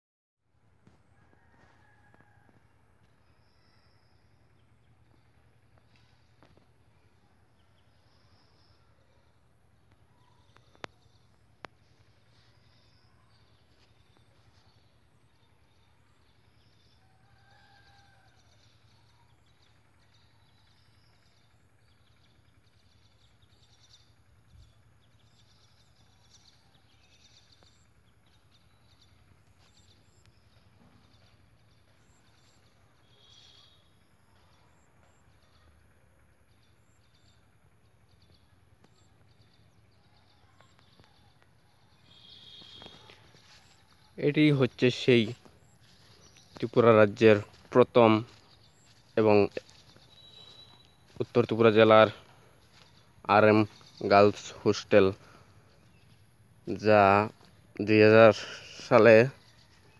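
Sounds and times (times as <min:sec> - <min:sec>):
faint high chirps: 0:25.8 - 0:35.9, 0:36.6 - 0:54.5.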